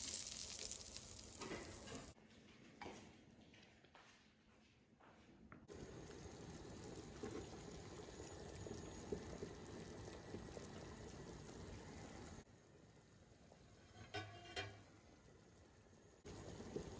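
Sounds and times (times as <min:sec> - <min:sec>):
broth boiling in a metal pot: 0:00.0 - 0:02.2, 0:05.7 - 0:16.9.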